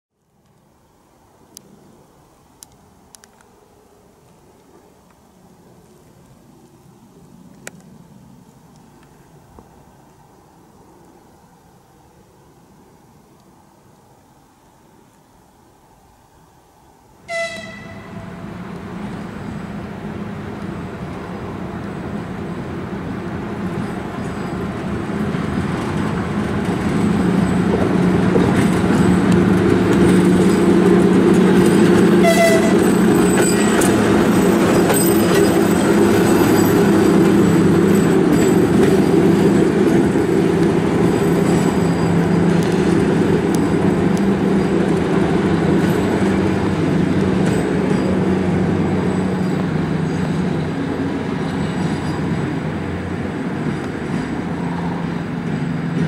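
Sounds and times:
diesel locomotive engine: 0.8 - 56.0
locomotive horn toot: 17.3 - 18.5, 32.0 - 34.1.

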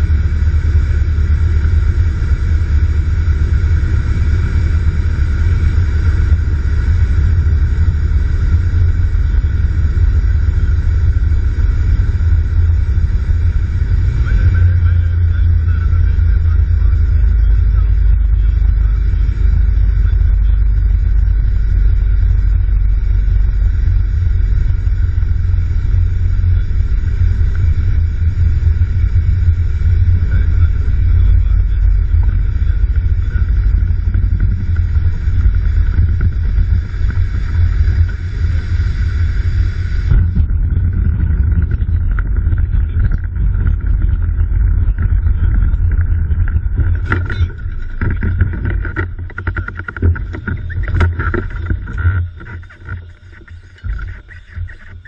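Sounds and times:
light aircraft engine drone: 0.0 - 55.0
airflow hiss: 36.6 - 40.2.

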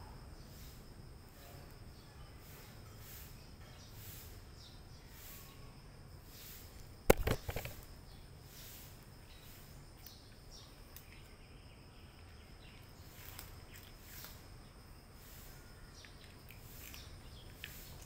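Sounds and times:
faint background hiss: 0.0 - 18.0
sharp knocks and clatters: 7.1 - 7.8.

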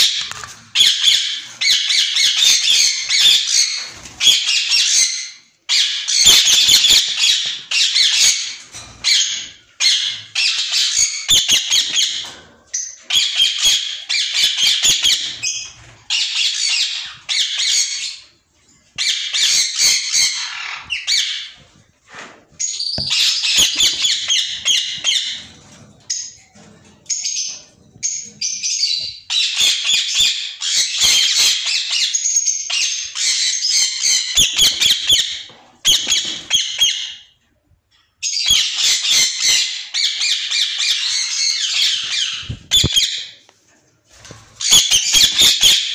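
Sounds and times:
parakeets squawking: 0.0 - 8.5, 19.0 - 21.6, 23.0 - 25.4, 27.2 - 37.2, 38.4 - 43.3, 44.6 - 45.9.

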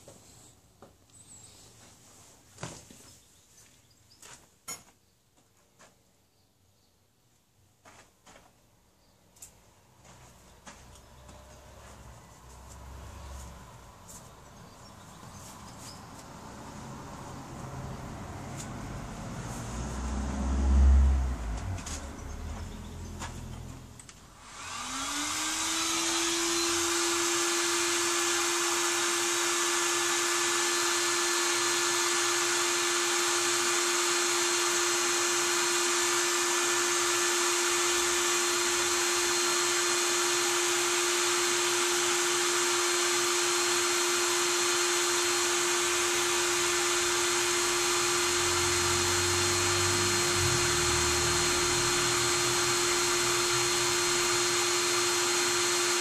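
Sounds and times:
impact wrench whining: 19.4 - 56.0.

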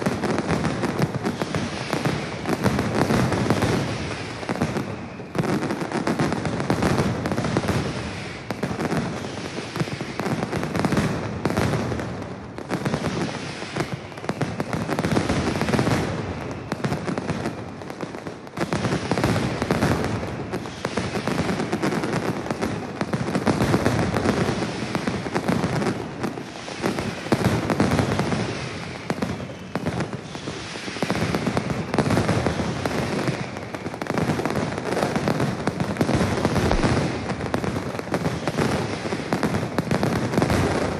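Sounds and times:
firecrackers banging rapidly: 18.7 - 40.9.

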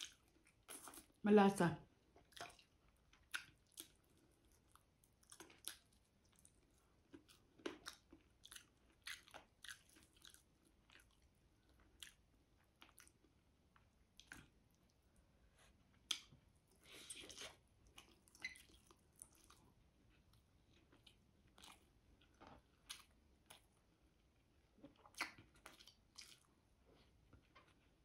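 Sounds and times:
close chewing mouth clicks: 2.2 - 12.2, 16.0 - 23.8, 24.8 - 26.5.

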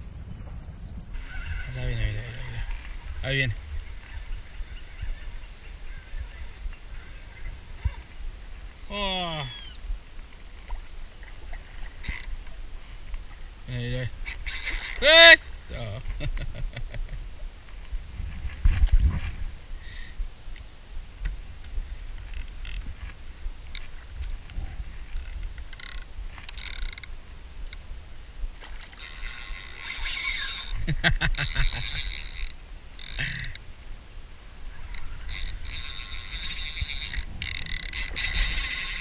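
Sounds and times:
reel drag buzzing: 1.0 - 9.8, 10.6 - 13.4, 14.0 - 16.2, 21.3 - 39.0
fishing reel ratcheting: 12.0 - 12.3, 14.2 - 15.2, 22.3 - 22.9, 25.1 - 27.1, 28.9 - 33.6, 34.8 - 39.0.

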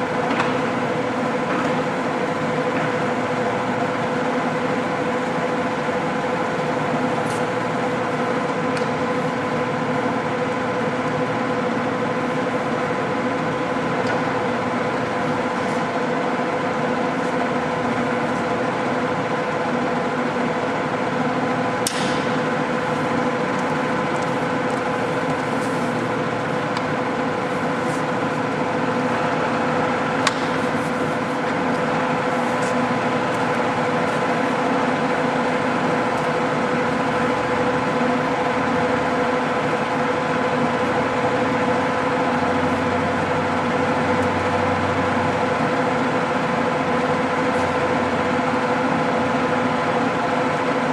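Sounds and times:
lathe humming with gear whine: 0.0 - 50.9
sharp click: 21.8 - 22.3.

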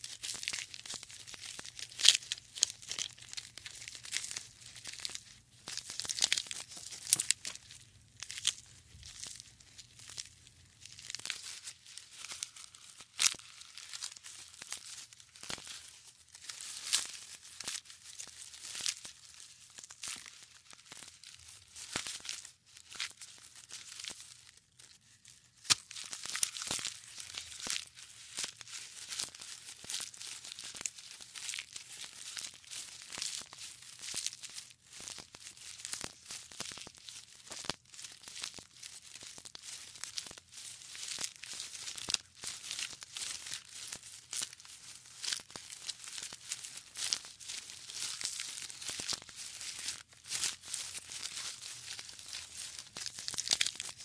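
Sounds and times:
giraffe chewing and tearing food: 0.2 - 22.3.

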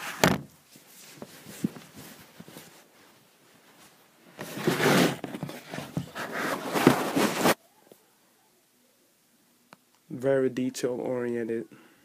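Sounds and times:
fabric rubbing over microphone: 0.0 - 7.6.

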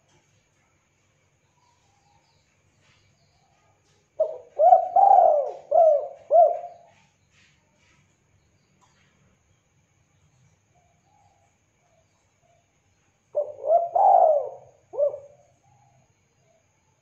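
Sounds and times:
dove cooing: 4.2 - 7.0, 13.4 - 15.9.

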